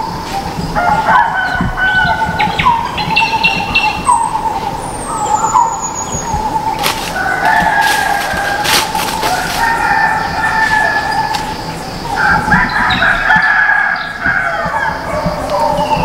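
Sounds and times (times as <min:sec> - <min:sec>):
hens clucking: 0:00.8 - 0:16.0
rooster crowing: 0:06.9 - 0:15.2.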